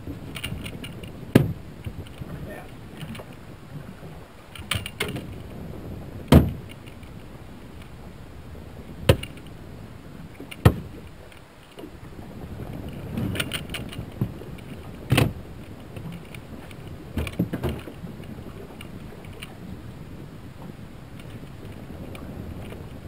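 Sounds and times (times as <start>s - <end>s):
knocks on aluminum boat deck: 1.3s - 1.6s, 6.3s - 6.6s, 10.6s - 10.9s.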